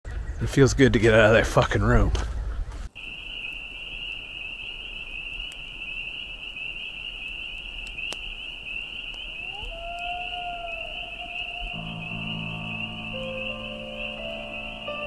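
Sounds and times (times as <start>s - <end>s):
insects trilling: 2.9s - 15.0s
gliding electronic music tones: 11.8s - 15.0s.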